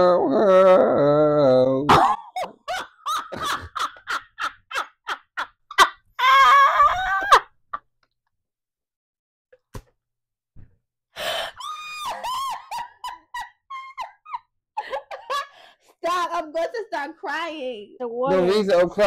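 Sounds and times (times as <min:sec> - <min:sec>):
person laughing hard: 0:01.9 - 0:07.6, 0:11.7 - 0:15.5.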